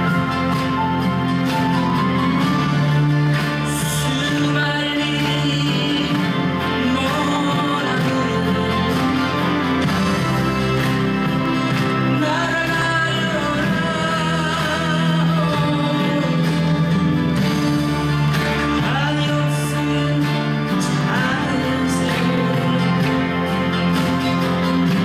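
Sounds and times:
acoustic guitar: 0.0s - 25.0s
man singing into microphone: 3.6s - 9.8s, 12.1s - 16.9s, 18.7s - 23.9s.

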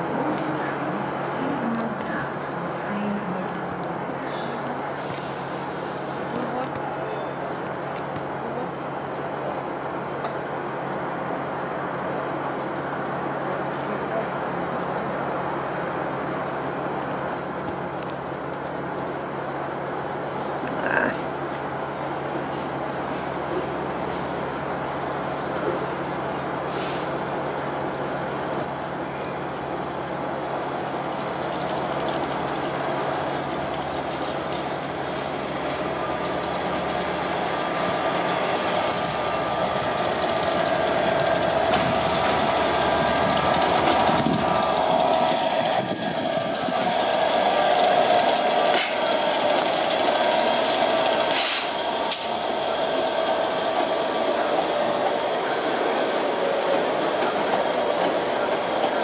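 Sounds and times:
diesel locomotive engine drone: 0.0s - 59.0s
train wheel clicks: 40.2s - 51.4s.

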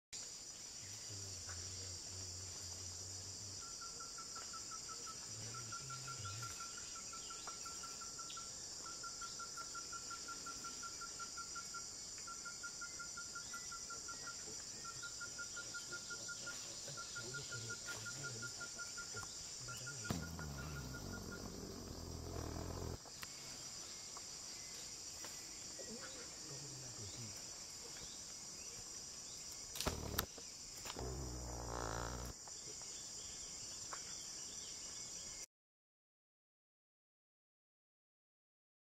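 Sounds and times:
buzzing insect chorus: 0.2s - 35.4s
fast-pulsing insect call: 14.9s - 24.0s, 29.7s - 32.4s
low rumbling rustle: 20.1s - 23.0s.

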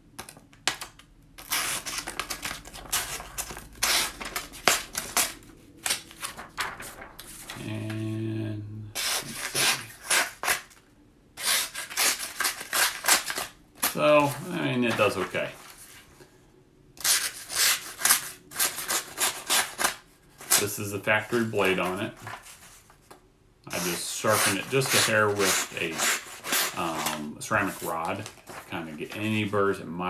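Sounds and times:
paper crinkling: 0.1s - 8.1s, 11.5s - 16.1s, 18.0s - 23.2s, 23.8s - 29.6s
knife blade slicing paper: 23.7s - 27.2s.

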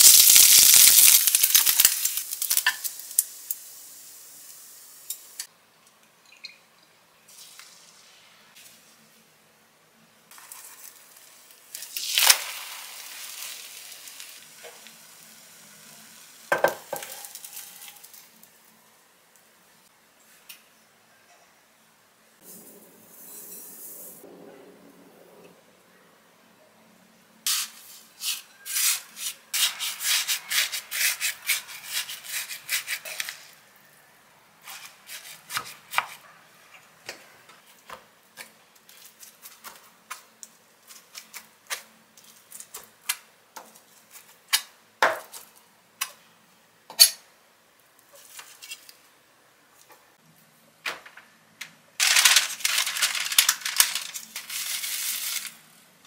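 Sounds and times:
plastic packet crinkling: 0.0s - 3.1s, 52.0s - 55.6s.

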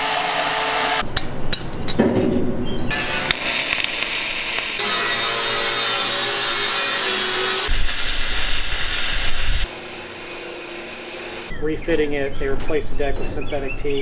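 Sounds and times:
angle grinder cutting metal pipe: 2.9s - 11.5s
welding: 2.9s - 11.5s
steady whine: 9.5s - 11.8s.

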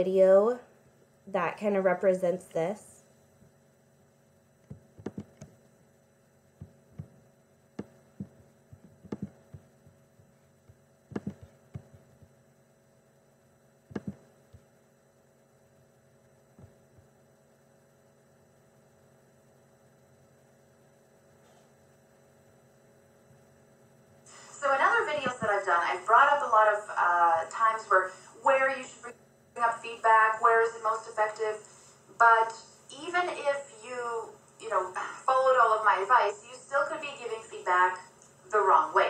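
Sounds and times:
faint electrical hum: 0.0s - 39.0s
computer mouse clicks: 4.7s - 5.6s, 9.0s - 9.4s, 11.1s - 12.0s, 13.9s - 14.6s.

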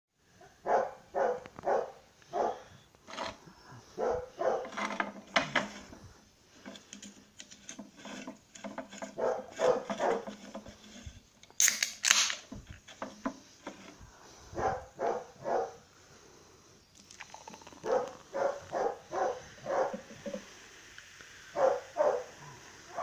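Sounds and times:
dog barking: 0.4s - 2.7s, 4.0s - 4.8s, 9.2s - 10.3s, 14.5s - 15.8s, 17.8s - 20.0s, 21.6s - 23.0s.

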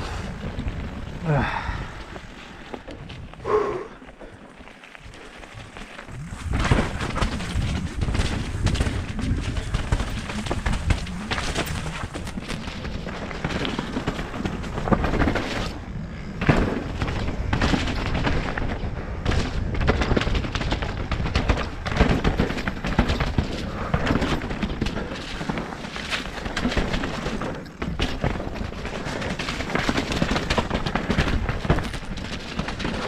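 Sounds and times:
wind buffeting microphone: 0.0s - 4.0s, 5.0s - 25.5s
bike tyres rolling over mud and stones: 0.0s - 33.0s
bike knocks and rattles: 4.0s - 33.0s.

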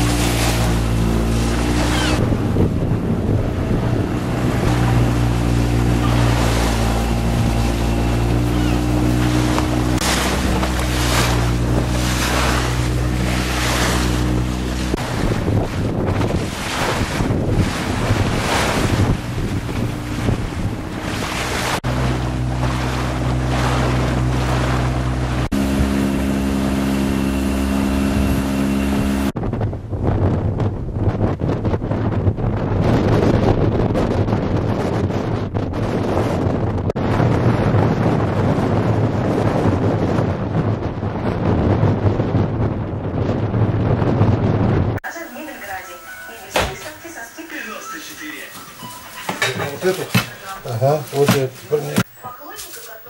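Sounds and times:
motorboat engine running: 0.0s - 45.1s, 48.4s - 53.0s
rush of water and wind: 0.0s - 53.0s.

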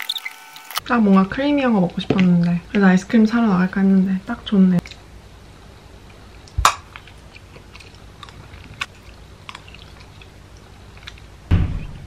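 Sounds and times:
mouth and chewing sounds: 6.0s - 11.4s
sharp knock: 11.5s - 12.0s.

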